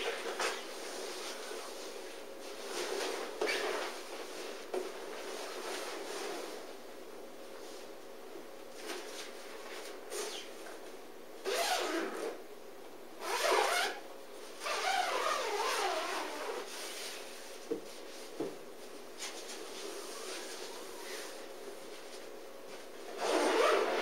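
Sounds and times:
fabric zipper pulled open: 11.4 - 12.4, 13.2 - 14.0, 14.6 - 16.7, 23.1 - 24.0.

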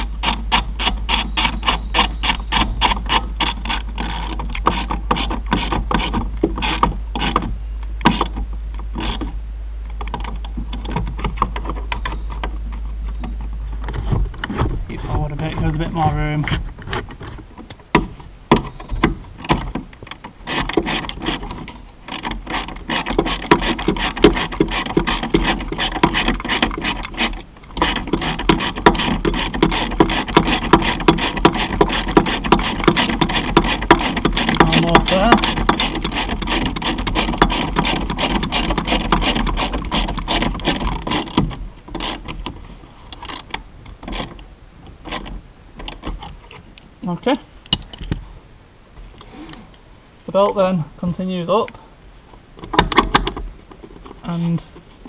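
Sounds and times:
hand ratchet clicking: 0.0 - 7.4, 19.4 - 42.4.

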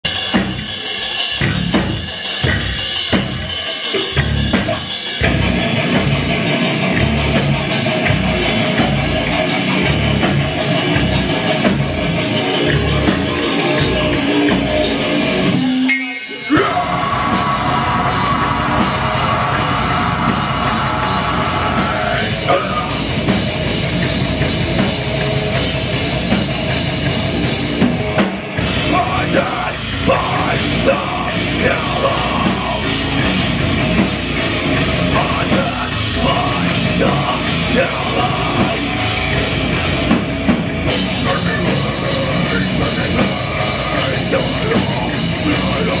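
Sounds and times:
heavy bass drum: 0.0 - 15.7, 16.6 - 46.0
live metal band playing: 0.0 - 46.0.

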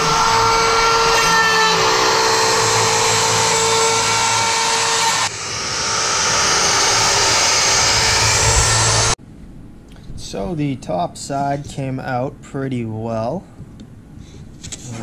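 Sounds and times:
router spindle whining: 0.0 - 9.2.

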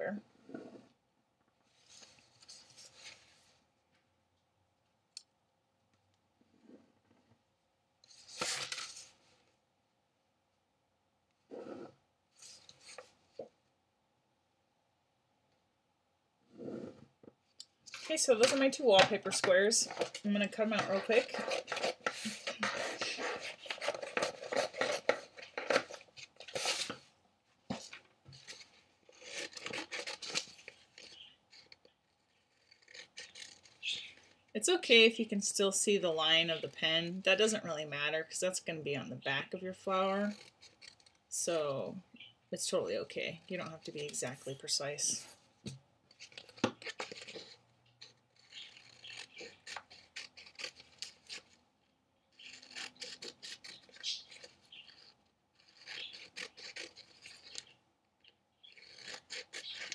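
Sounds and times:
paper rustling: 8.1 - 9.4, 17.8 - 34.4, 45.1 - 51.6, 52.4 - 57.8
scissors snipping wallpaper: 18.2 - 27.0, 46.1 - 51.6, 52.4 - 57.7, 58.6 - 59.9.

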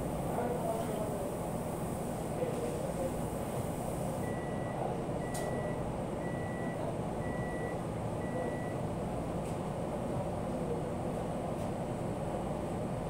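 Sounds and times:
low background hum: 0.0 - 13.0
electronic appliance beeps: 4.2 - 8.8.

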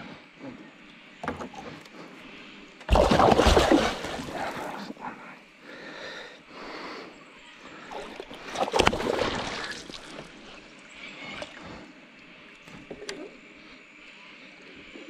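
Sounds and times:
fish thrashing and splashing: 2.9 - 4.8, 8.0 - 10.4.

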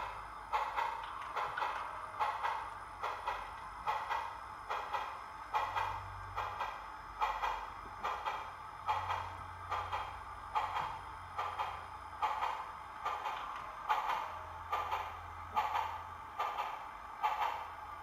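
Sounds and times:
model steam locomotive chuffs: 6.5 - 18.0.

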